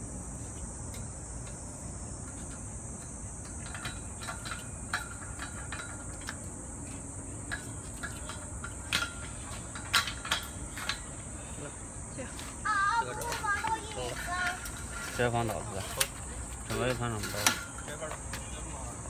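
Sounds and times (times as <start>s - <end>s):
insect chorus: 0.0s - 19.0s
metal pipe clinking and knocking: 3.4s - 6.4s.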